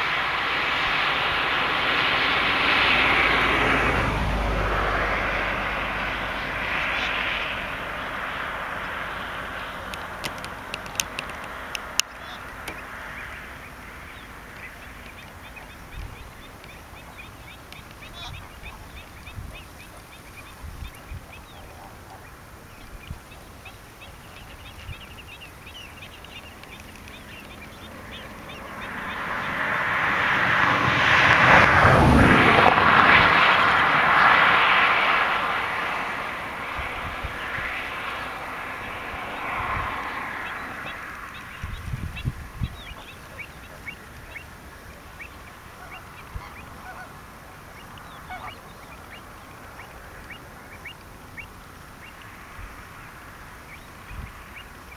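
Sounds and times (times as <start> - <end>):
loud rushing noise: 0.0 - 17.4, 27.5 - 42.7
flamingos honking and chattering: 0.0 - 54.9.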